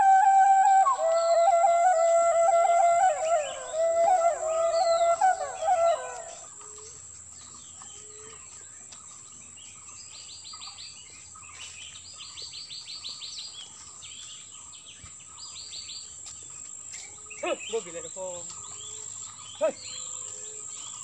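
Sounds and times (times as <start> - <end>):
flute-like background music: 0.0 - 7.0
insects chirping: 0.0 - 11.0, 15.3 - 21.0
birds calling: 0.0 - 21.0.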